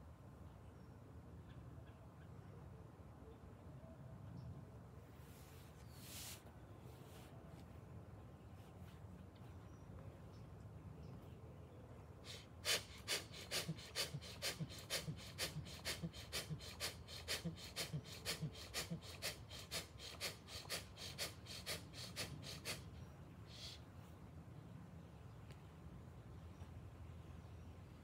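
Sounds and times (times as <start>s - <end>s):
man breathing out forcefully: 12.3s - 22.9s.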